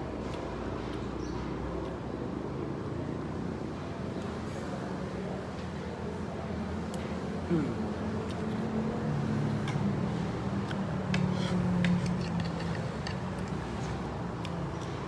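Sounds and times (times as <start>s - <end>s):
cutlery and dishes clicking: 11.2s - 13.6s.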